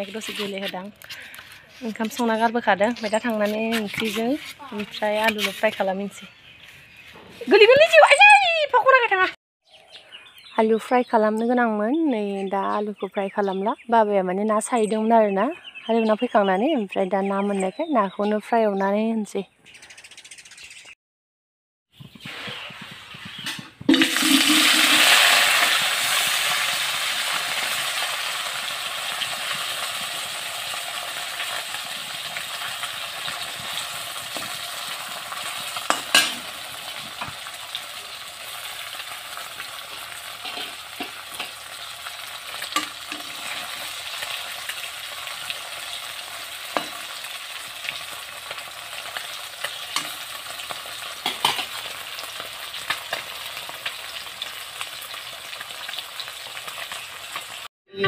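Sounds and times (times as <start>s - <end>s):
metal spatula scraping pan: 3.0s - 5.8s, 40.4s - 41.5s
fish sizzling in hot oil: 22.2s - 57.7s.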